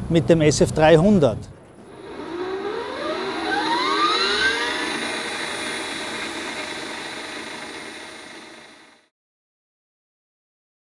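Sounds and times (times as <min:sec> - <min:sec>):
motor whine rising in pitch: 0:01.7 - 0:09.1.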